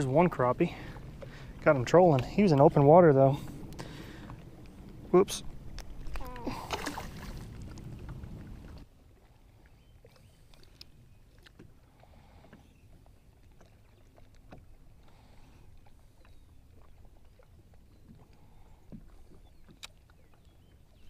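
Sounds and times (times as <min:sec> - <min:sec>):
low steady rumble: 0:00.0 - 0:08.9
water lapping at hull: 0:00.0 - 0:21.0.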